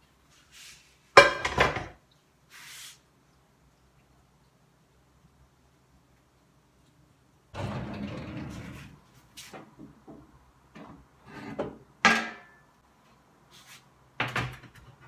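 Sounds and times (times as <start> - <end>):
rustling and scraping: 0.2 - 1.9, 7.6 - 9.8, 13.0 - 14.0.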